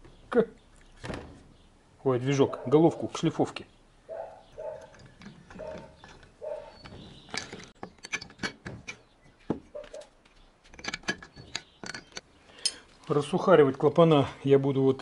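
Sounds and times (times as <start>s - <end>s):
metal hand tools clinking: 4.5s - 9.1s, 10.7s - 12.9s.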